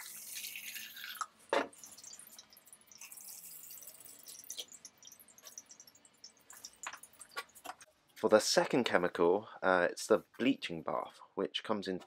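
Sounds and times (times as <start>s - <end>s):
water pouring into plastic jug: 0.0s - 7.7s.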